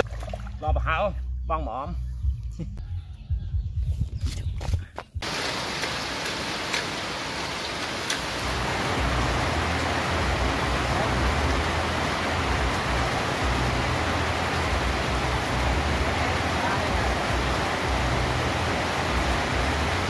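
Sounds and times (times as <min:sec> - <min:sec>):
water running onto metal tabletop: 0:05.2 - 0:09.4
steady rain: 0:05.2 - 0:20.0.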